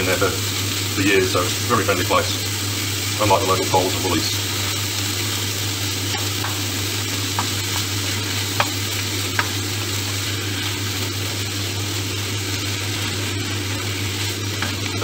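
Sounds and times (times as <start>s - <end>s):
meat and onion sizzling in a pan: 0.0s - 15.0s
spatula knocking against a pan: 6.1s - 6.6s, 8.6s - 9.6s.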